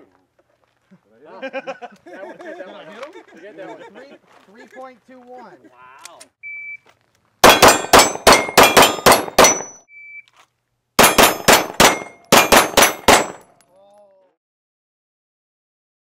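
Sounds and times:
shot timer beep: 0:06.4 - 0:06.8, 0:08.7 - 0:10.3
pistol shots: 0:07.4 - 0:09.8, 0:11.0 - 0:13.5
steel targets ringing: 0:07.4 - 0:09.9, 0:11.0 - 0:13.5.

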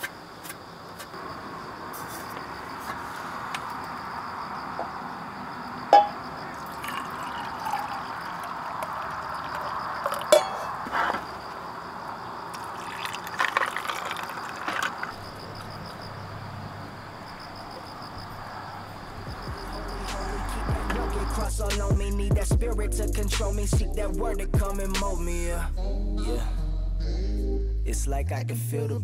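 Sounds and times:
metal cups knocking on table: 0:05.9 - 0:06.2, 0:10.2 - 0:10.7
coffee pouring over ice: 0:06.5 - 0:10.7, 0:12.6 - 0:15.2
ice clinking against metal: 0:06.6 - 0:11.2, 0:12.6 - 0:15.2.

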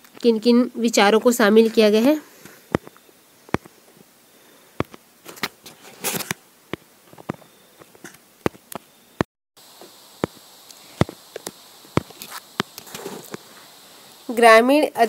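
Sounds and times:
short rustle: 0:12.1 - 0:13.9.

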